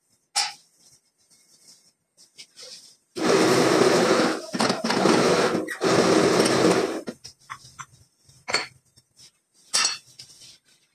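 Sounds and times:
hydraulic press pump working: 3.2 - 7.1.

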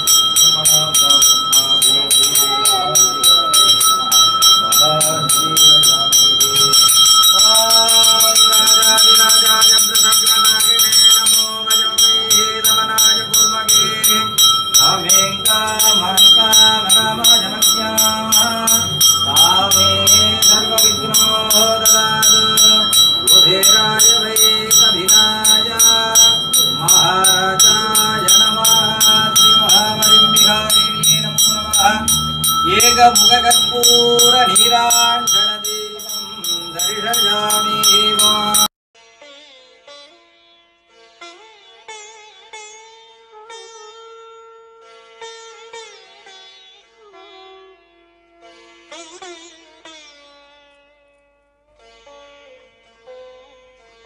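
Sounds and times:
temple bell ringing: 0.0 - 38.7.

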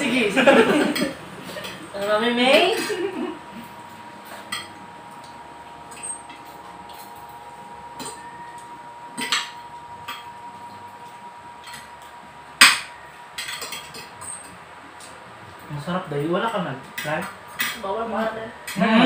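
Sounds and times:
cutlery clinking on plates: 12.6 - 14.5.

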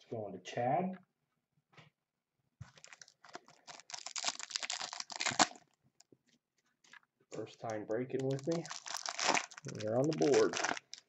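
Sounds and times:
plastic wrapper crinkling: 2.6 - 11.0.

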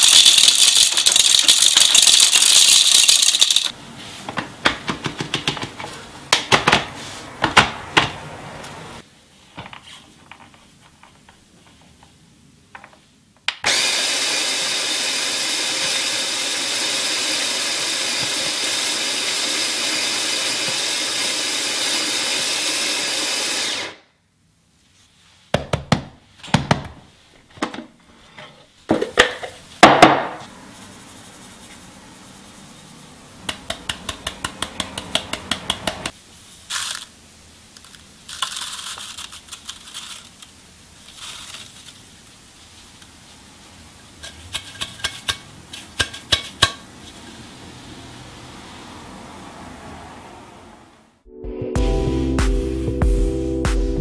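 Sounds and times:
coffee grinder motor grinding: 0.0 - 3.7, 13.6 - 24.0.

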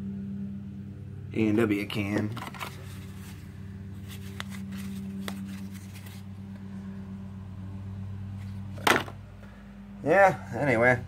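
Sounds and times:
low hum: 0.0 - 11.0
short rustle: 2.4 - 6.4.

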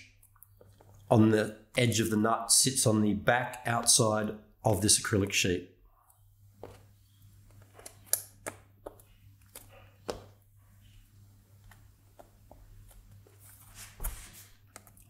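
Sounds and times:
soft rustle: 12.2 - 14.6.

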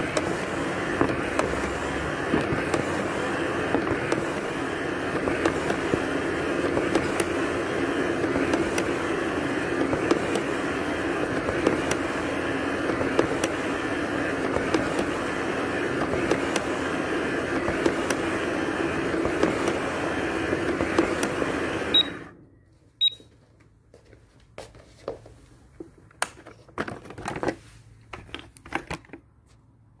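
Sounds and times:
robot vacuum cleaner whirring: 0.0 - 22.4
short high beeps: 23.0 - 23.2.

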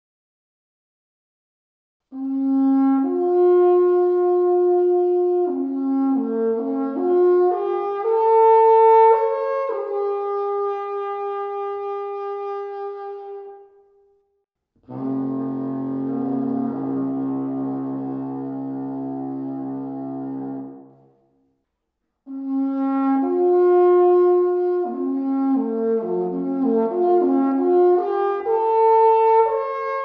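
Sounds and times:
alphorn melody: 14.9 - 20.9.

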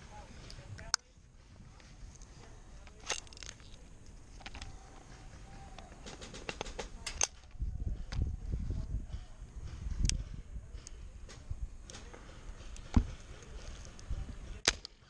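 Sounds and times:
low rumbling noise: 6.9 - 15.0.

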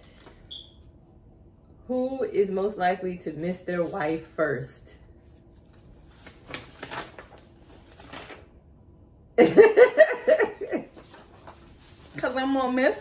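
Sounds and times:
soft rustles: 10.9 - 13.0.

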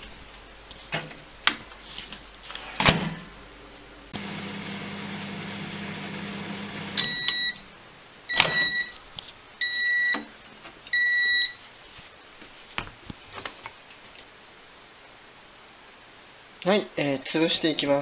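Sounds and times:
microwave oven humming: 3.8 - 7.8
loud two-tone beeps: 7.0 - 7.6, 8.3 - 8.9.

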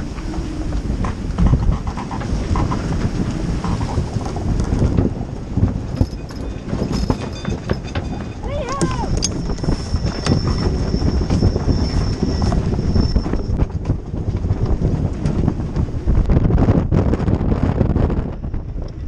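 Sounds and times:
choppy sea rushing: 0.0 - 19.0
wind buffeting microphone: 0.0 - 19.0
thin high whine: 8.9 - 13.6.

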